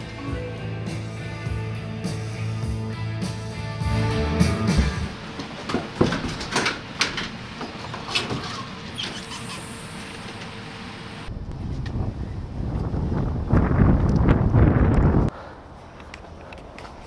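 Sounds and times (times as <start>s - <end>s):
background music: 0.0s - 5.2s.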